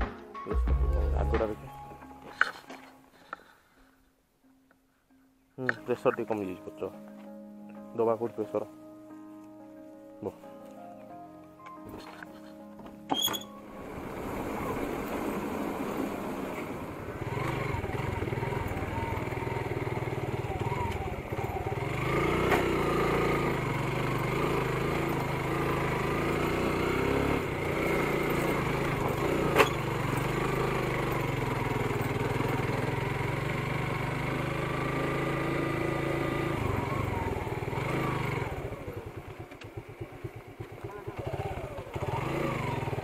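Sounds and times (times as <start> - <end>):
motorcycle engine running: 14.6 - 43.0.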